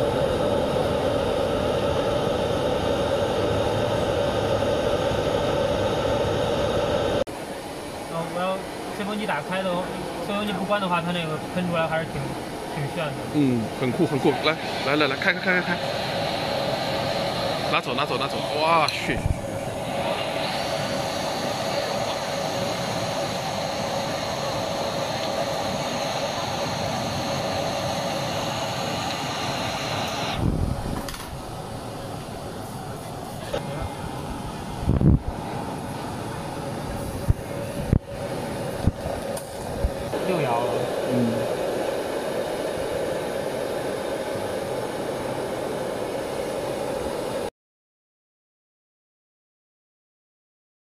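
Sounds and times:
kiln fire roaring: 0.0s - 47.5s
thin high whine: 0.0s - 47.5s.

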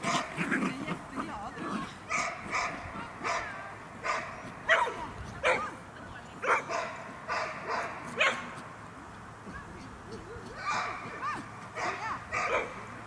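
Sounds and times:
small dog barking: 0.0s - 0.4s, 2.1s - 5.7s, 6.4s - 8.6s, 10.1s - 13.0s.

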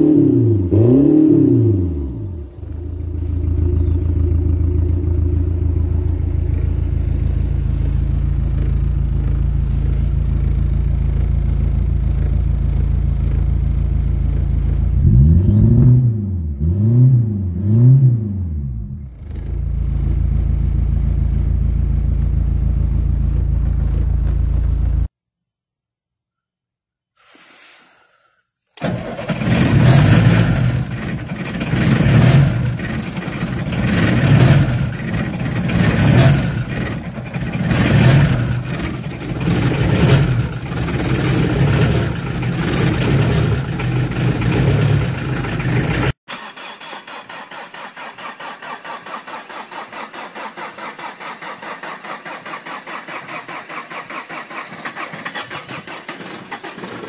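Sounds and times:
steady rhythmic diesel engine: 0.0s - 15.4s, 28.8s - 57.0s
diesel engine surging unevenly: 0.0s - 15.8s, 28.8s - 46.6s.

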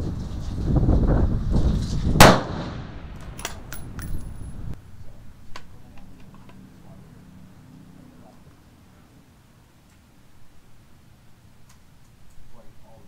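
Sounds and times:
rifle shot: 2.2s - 3.9s.

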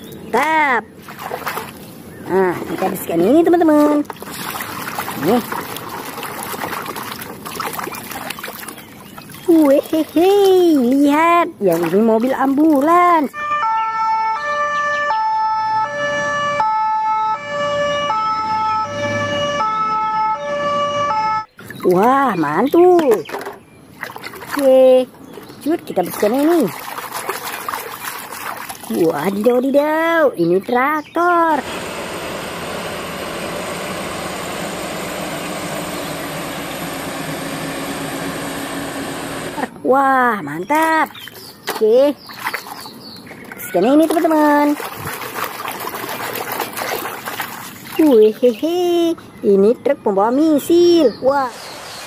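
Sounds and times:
two-tone ambulance siren: 13.3s - 21.5s
tractor engine running under load: 31.6s - 39.7s.

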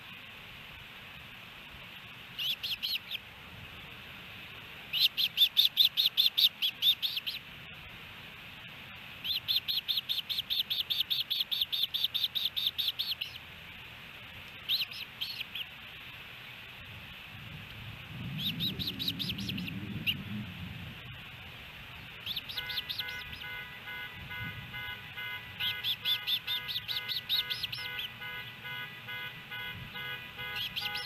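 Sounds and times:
osprey high chirps: 2.4s - 3.2s, 4.9s - 7.4s, 9.2s - 13.4s, 14.6s - 15.7s, 18.4s - 20.2s, 22.2s - 31.0s.

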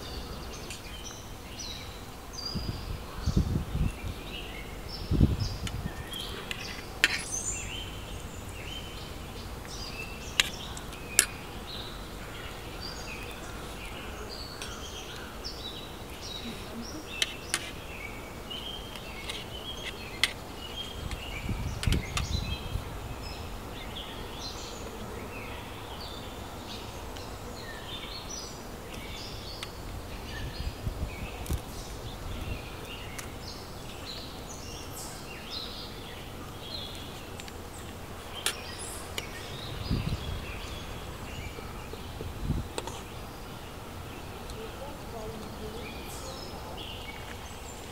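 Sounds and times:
low rumbles: 0.0s - 17.2s, 36.3s - 47.7s
outdoor background noise: 0.0s - 47.9s
small birds chirping: 0.0s - 47.9s.

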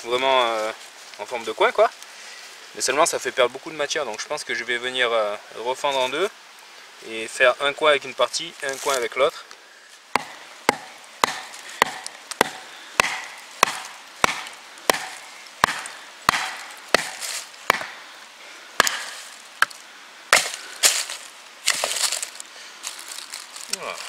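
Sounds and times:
wood splitting: 10.1s - 18.0s, 18.8s - 22.4s.

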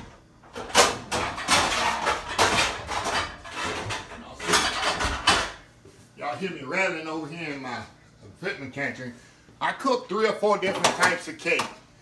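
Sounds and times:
pots and pans clattering: 0.0s - 5.7s, 10.6s - 11.8s.

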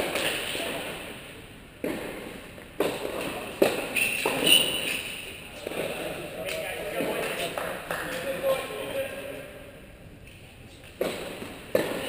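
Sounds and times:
tennis balls struck by rackets: 0.0s - 1.1s, 1.8s - 5.0s, 10.9s - 12.0s.

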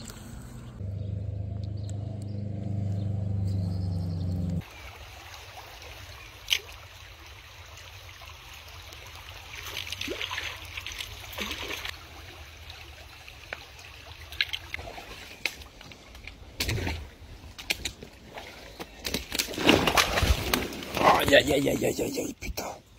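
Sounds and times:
small stream trickling: 4.6s - 22.9s.

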